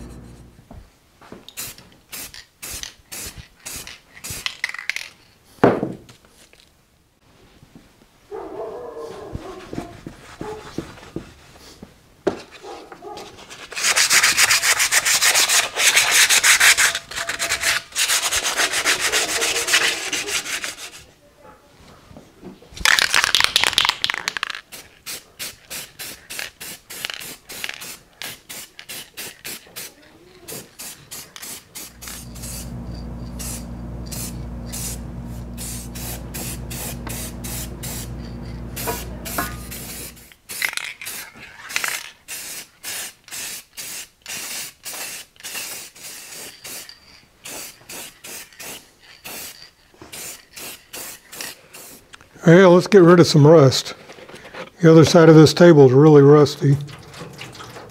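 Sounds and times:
steady low hum: 0.0 - 0.7, 31.7 - 40.4
hand sanding metal: 13.5 - 21.1, 30.5 - 40.4.

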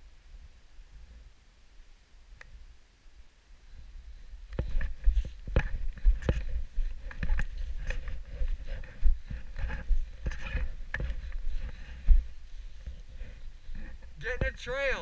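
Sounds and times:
wind rumble on microphone: 3.7 - 14.2.

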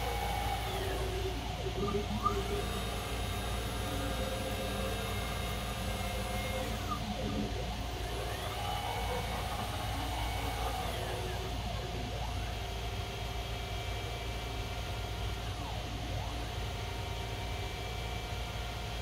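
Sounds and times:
stepper motors whining: 0.0 - 13.0
steady machine hum: 0.0 - 19.0.

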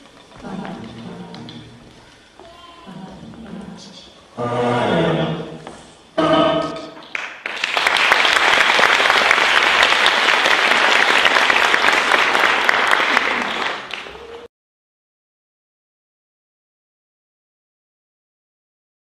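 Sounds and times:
music note: 6.2 - 7.0
audience applauding: 7.0 - 14.5.

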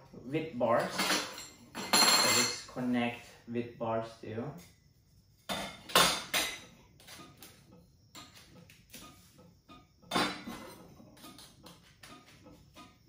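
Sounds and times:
metal tubes clinking and clattering: 0.7 - 2.8, 8.2 - 13.0.

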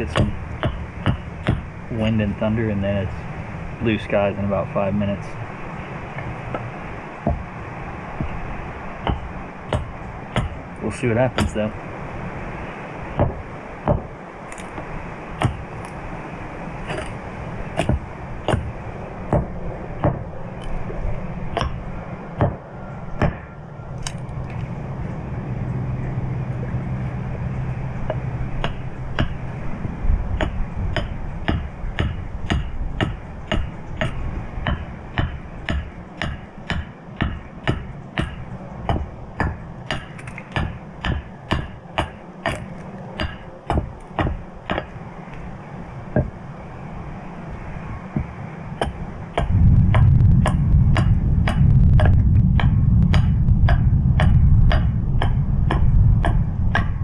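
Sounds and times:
carving tool knocking on wood: 0.0 - 1.7, 6.6 - 7.5, 9.1 - 10.6, 13.2 - 14.1, 15.4 - 15.6, 16.9 - 17.1, 17.8 - 18.7, 19.3 - 20.2, 21.6 - 21.8, 23.2 - 23.5, 28.1 - 29.4, 30.3 - 44.9, 48.2 - 57.0.

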